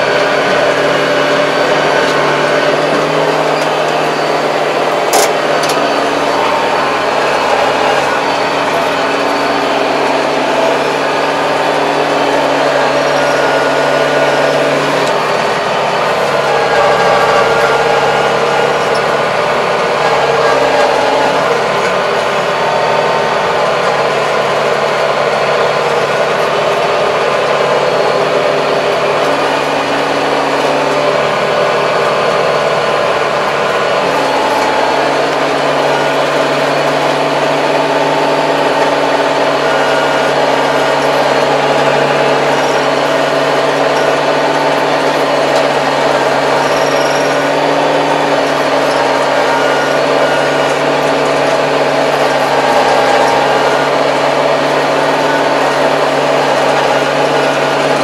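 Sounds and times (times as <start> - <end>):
rotary tiller working soil: 0.0 - 58.0
tractor diesel engine running: 0.0 - 58.0.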